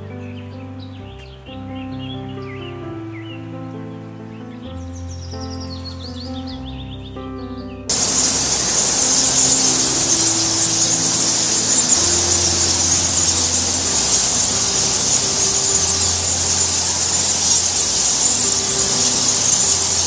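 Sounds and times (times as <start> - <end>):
bats squeaking and chittering: 7.9 - 20.0.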